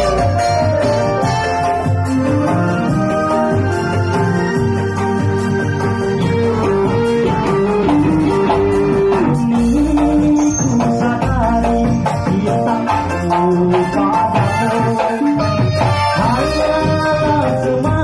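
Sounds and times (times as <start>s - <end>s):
electronic keyboard melody: 0.0s - 18.0s
man singing into a microphone: 8.0s - 18.0s.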